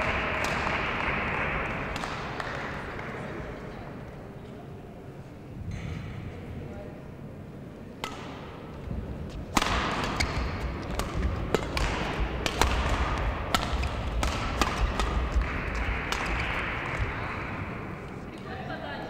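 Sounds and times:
rackets striking shuttlecock: 0.0 - 3.2, 8.0 - 18.5
hall noise: 0.0 - 3.9.

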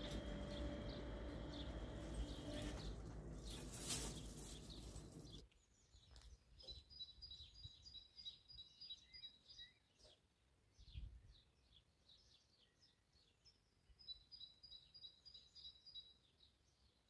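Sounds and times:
low outdoor rumble and hiss: 0.0 - 5.4
small birds chirping: 0.0 - 17.0.

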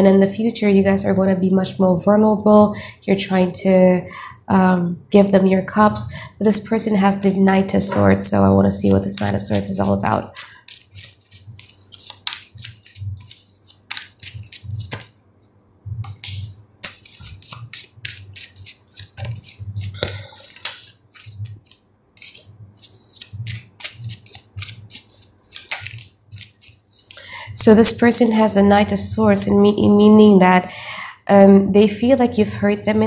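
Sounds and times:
cards being shuffled: 8.7 - 15.2, 16.0 - 27.2.

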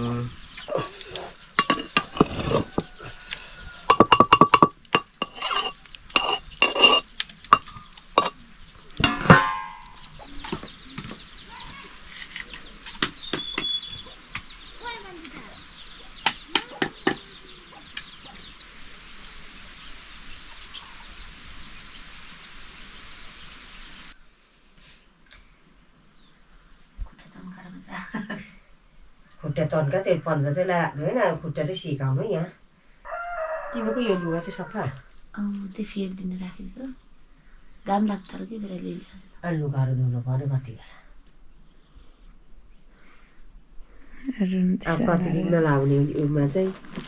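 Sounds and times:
chickens clucking: 0.0 - 4.3, 7.6 - 18.7
faint steady hiss: 0.0 - 47.0
cooking pot lid clinking: 1.6 - 2.5, 3.9 - 8.4, 9.0 - 10.2.

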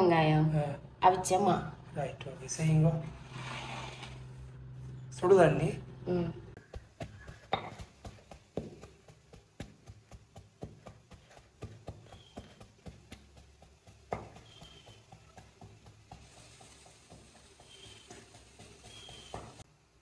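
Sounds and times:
cup knocking and scraping bowl: 7.5 - 7.9.

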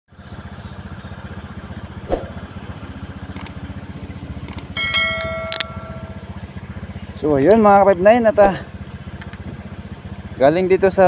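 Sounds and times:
scooter engine idling: 0.1 - 11.0
light clicks: 3.3 - 3.6, 4.4 - 4.8, 8.8 - 9.4
steady ringing tone: 4.2 - 6.9.

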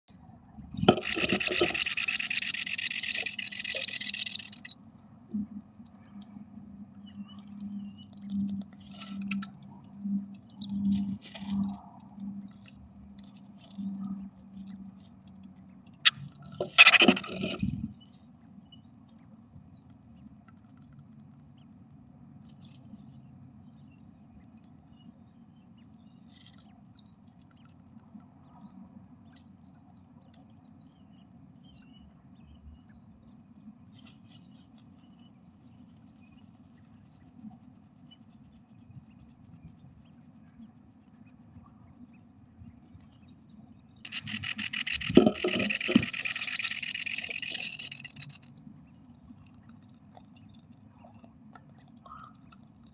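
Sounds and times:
nestlings peeping: 0.1 - 21.8, 22.4 - 52.9
low steady hum: 0.1 - 52.9
birds rustling in nest: 0.7 - 4.8, 10.6 - 15.3, 15.9 - 18.3, 44.1 - 48.6
chicks begging calls: 0.8 - 4.8, 16.0 - 17.6, 44.1 - 48.6.

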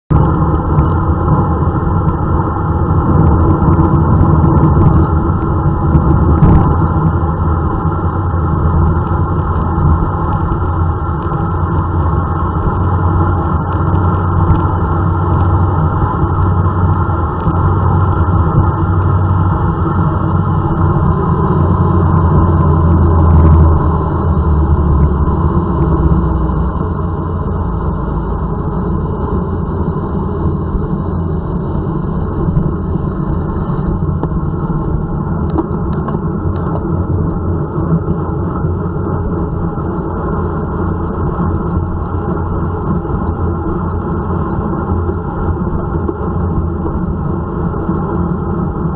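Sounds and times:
wind rushing over microphone: 0.1 - 48.9.

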